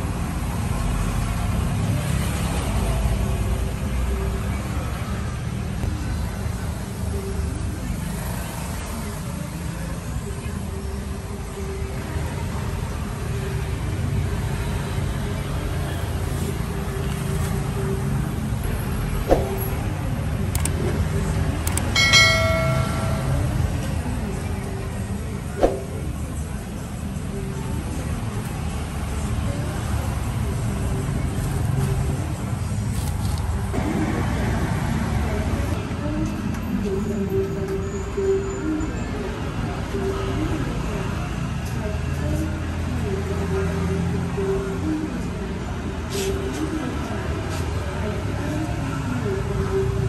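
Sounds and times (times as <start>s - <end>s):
vehicle engine rumble: 0.0s - 37.4s
bright bell ding: 22.0s - 23.8s.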